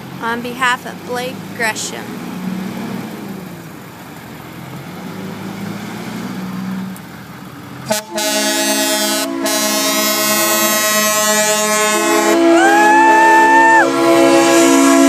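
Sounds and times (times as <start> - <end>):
heavy truck engines: 0.0 - 15.0
truck air horn blast: 7.8 - 15.0.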